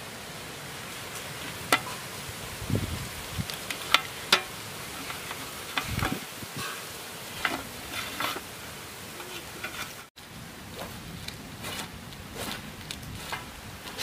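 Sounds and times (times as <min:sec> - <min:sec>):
steady hiss: 0:00.0 - 0:14.0
knife scraping dried fish: 0:11.6 - 0:14.0.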